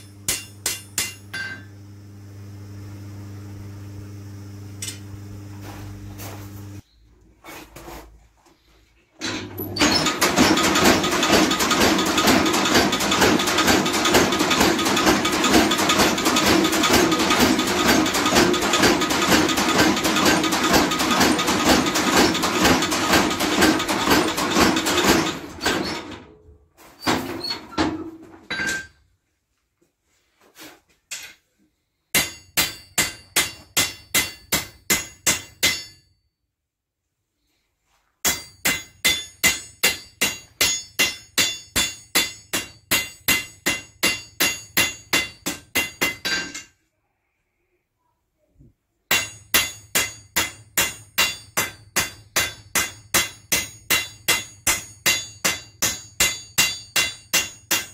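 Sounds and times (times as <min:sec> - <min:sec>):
power hammer pounding steel: 0:00.0 - 0:01.6, 0:09.8 - 0:26.1, 0:32.2 - 0:36.0, 0:38.3 - 0:46.5, 0:49.1 - 0:57.9
hand hammer ringing on anvil: 0:00.0 - 0:01.7, 0:32.1 - 0:36.2, 0:38.2 - 0:46.6, 0:49.1 - 0:57.9.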